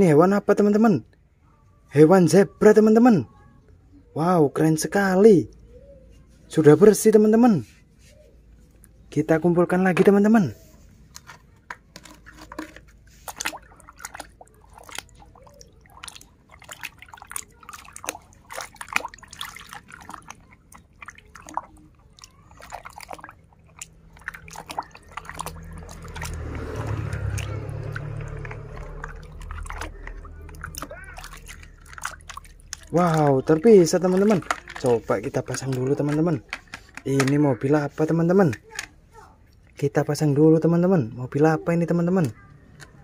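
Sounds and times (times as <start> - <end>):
water sloshing: 8.2 - 40.4
water splashing in a bucket: 9.6 - 38.9.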